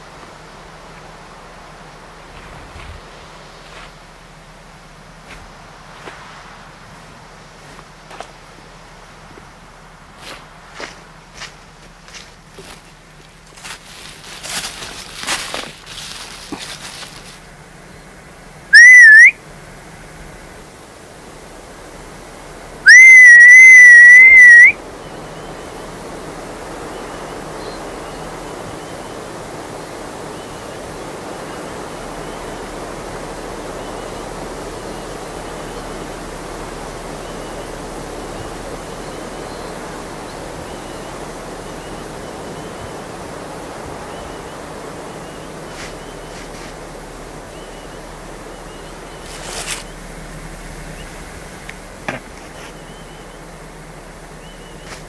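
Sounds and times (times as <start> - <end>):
steady rushing noise: 0.0 - 12.5
rising whistles: 18.7 - 19.4, 22.8 - 25.9, 47.1 - 50.1.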